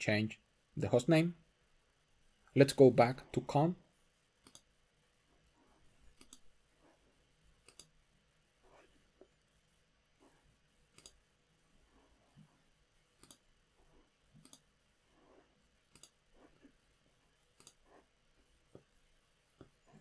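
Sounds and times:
computer mouse clicks: 0:04.4 - 0:04.7, 0:06.1 - 0:06.5, 0:07.6 - 0:08.0, 0:10.9 - 0:11.2, 0:13.2 - 0:13.5, 0:14.4 - 0:14.7, 0:15.9 - 0:16.2, 0:17.5 - 0:17.8.

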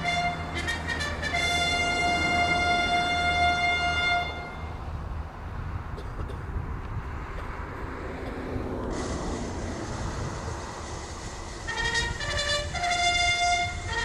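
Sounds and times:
trumpet call: 0:00.0 - 0:04.8, 0:11.5 - 0:14.0
wind rumbling on microphone: 0:01.0 - 0:14.0.

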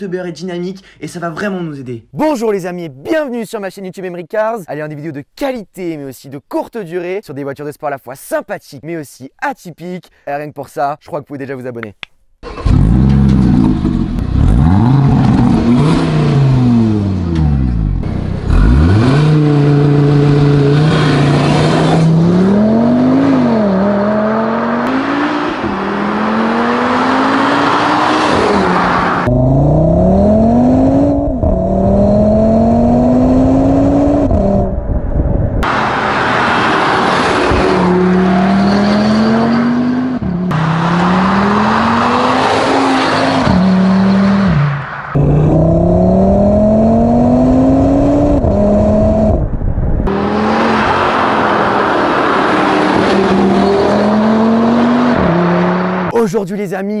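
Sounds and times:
car engine revving: 0:12.4 - 0:56.1.

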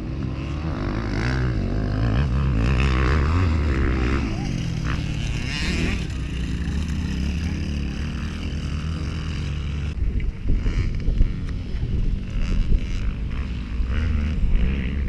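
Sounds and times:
dirt bike engines: 0:00.0 - 0:15.0
wind noise on microphone: 0:09.6 - 0:15.0.

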